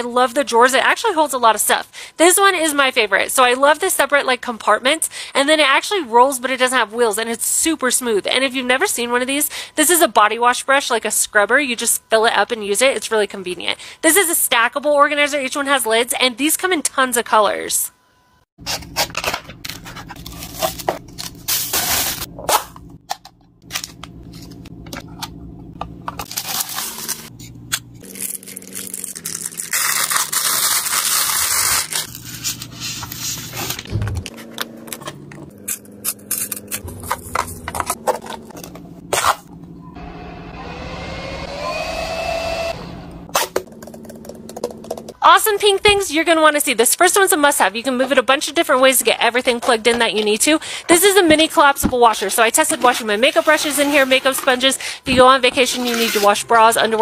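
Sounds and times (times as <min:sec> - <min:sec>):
handheld fan whine: 0:39.7 - 0:43.2.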